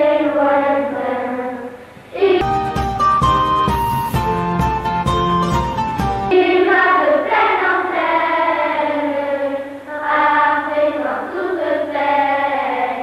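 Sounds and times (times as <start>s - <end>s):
children singing in unison: 0.0s - 2.4s, 6.3s - 13.0s.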